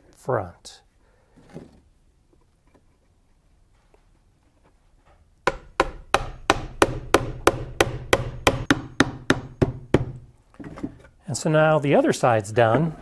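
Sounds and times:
hammer striking nail into wood: 5.5s - 10.2s.

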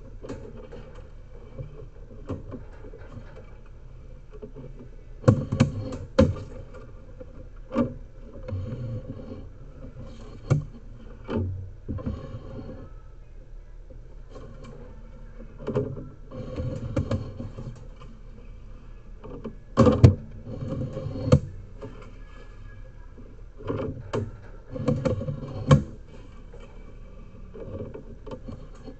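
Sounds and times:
cable scraping in drain: 4.4s - 13.0s, 14.3s - 28.9s.

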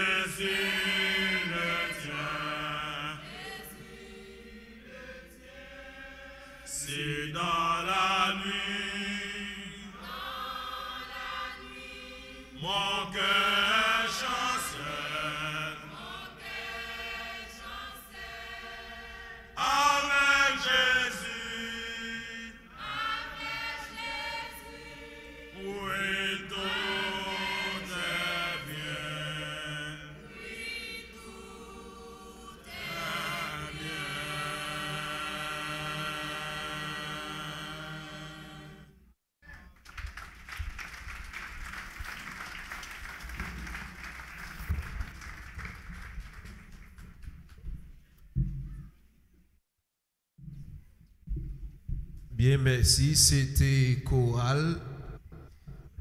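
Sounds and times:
women's choir singing: 0.0s - 38.9s.

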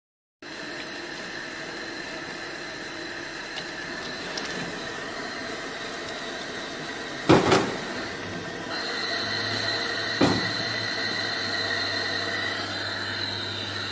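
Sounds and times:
machinery hum: 0.5s - 13.9s.

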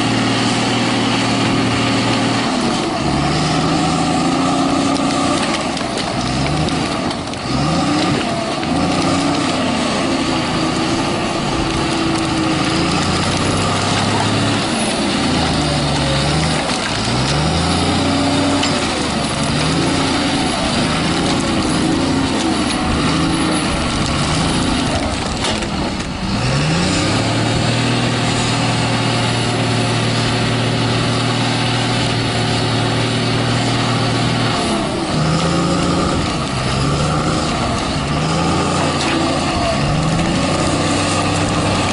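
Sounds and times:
diesel engine revving under load: 0.0s - 41.9s.

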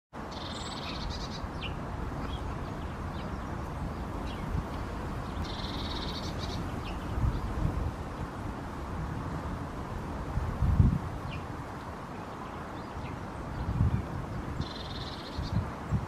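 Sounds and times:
songbirds trilling and chirping: 0.2s - 16.0s.

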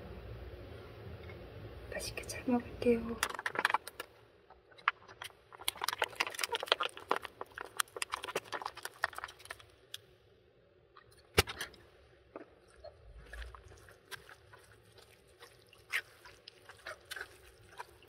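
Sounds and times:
plastic crackling: 3.2s - 10.0s
wet squirts from sauce pouch: 5.6s - 9.6s, 13.2s - 18.0s.

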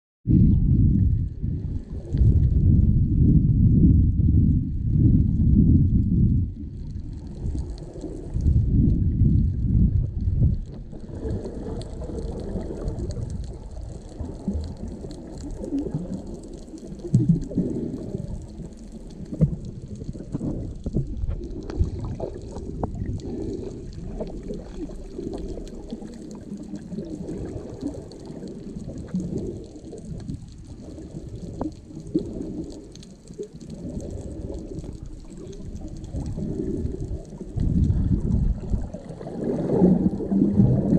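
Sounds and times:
underwater regulator bubbles gurgling: 0.3s - 40.9s
steady hiss with small clicks: 6.7s - 8.4s, 10.6s - 40.3s.

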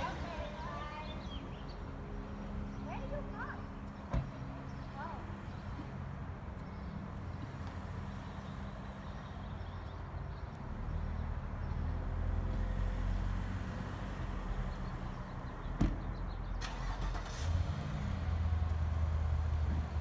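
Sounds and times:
car engine idling: 16.6s - 17.5s.

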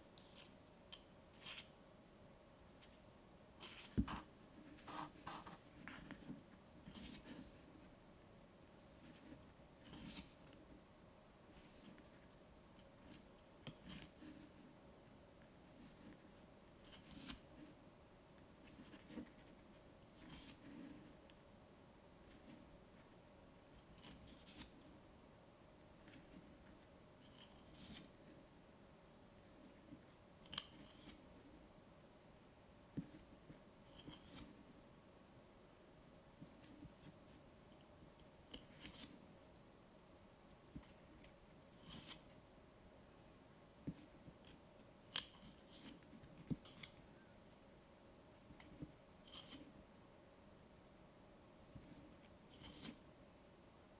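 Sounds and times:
pages turning: 1.4s - 1.7s, 3.6s - 7.4s, 9.8s - 10.4s, 16.8s - 17.4s, 38.5s - 39.1s, 41.8s - 42.2s, 52.5s - 53.0s.

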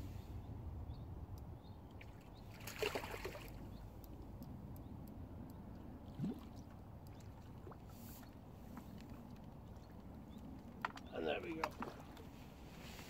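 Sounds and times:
water sloshing and splashing: 1.9s - 4.2s, 5.7s - 13.0s.

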